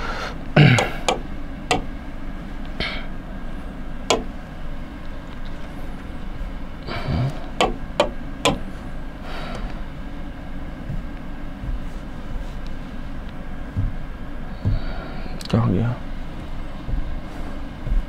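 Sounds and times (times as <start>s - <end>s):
steady low hum: 0.0s - 18.0s
pen tapping on a screen: 0.8s - 1.9s, 7.6s - 8.6s.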